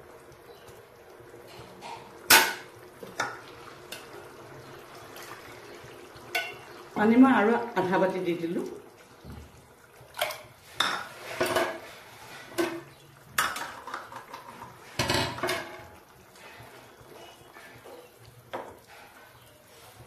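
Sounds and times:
metal utensils clanking on a pan: 1.5 - 4.2, 6.2 - 7.0, 10.1 - 19.5.

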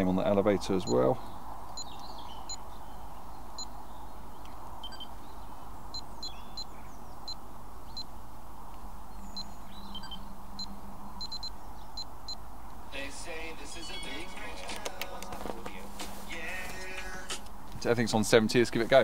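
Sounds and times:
transmitter beeping: 4.8 - 5.2, 9.4 - 12.4.

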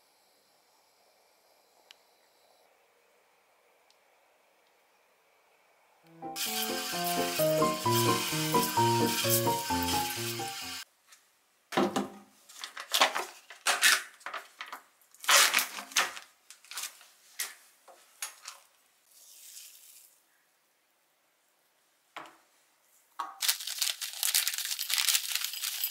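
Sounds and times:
music: 6.1 - 10.8
faucet sprayer hissing into sink: 6.4 - 10.8.

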